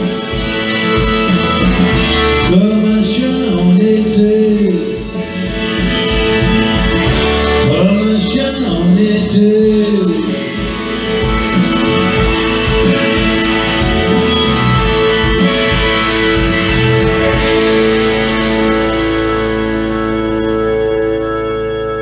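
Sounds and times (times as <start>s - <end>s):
pop ballad backing track: 0.0s - 22.0s
man singing wordless phrases: 2.4s - 5.2s, 7.6s - 10.6s.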